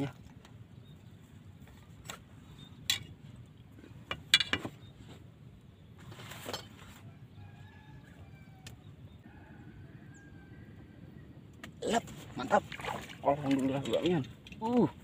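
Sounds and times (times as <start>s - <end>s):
fishing gear clicking and clinking: 13.3s - 15.0s.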